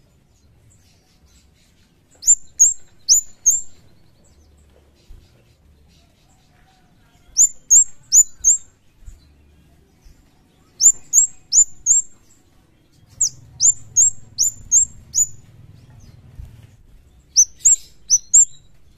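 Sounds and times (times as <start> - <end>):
bird high sharp chip notes: 10.8 - 12.2, 17.4 - 18.7.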